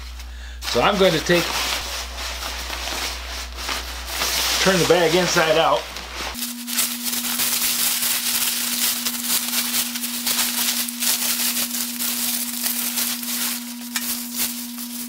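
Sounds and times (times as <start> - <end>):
cloth bag rustling and crinkling: 0.0 - 15.0.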